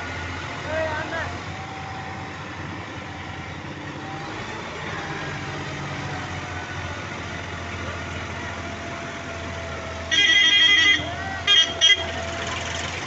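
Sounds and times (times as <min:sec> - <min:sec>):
tractor diesel engine running: 0:00.0 - 0:13.0
loud multi-tone vehicle horn: 0:10.0 - 0:12.3.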